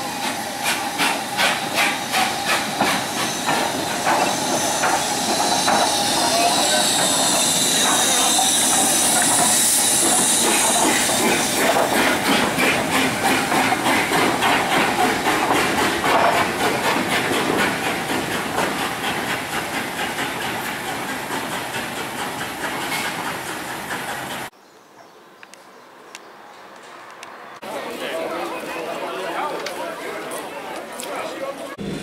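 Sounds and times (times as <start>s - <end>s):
steam hissing: 0.0s - 24.5s
train wheels clattering: 0.6s - 24.5s.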